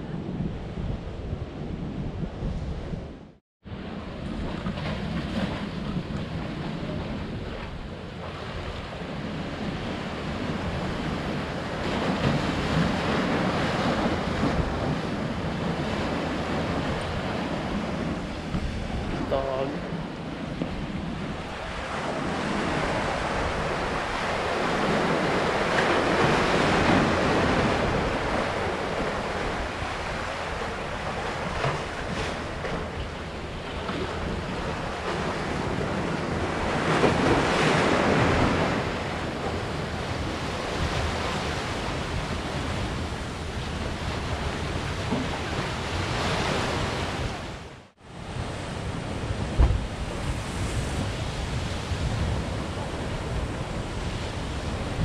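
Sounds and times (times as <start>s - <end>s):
wind buffeting microphone: 0.0s - 55.0s
surf breaking on rocks: 21.3s - 47.5s.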